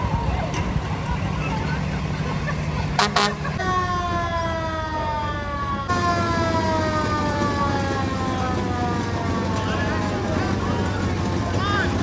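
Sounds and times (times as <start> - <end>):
low engine rumble: 0.0 - 12.0
fire engine siren sliding down: 3.1 - 12.0.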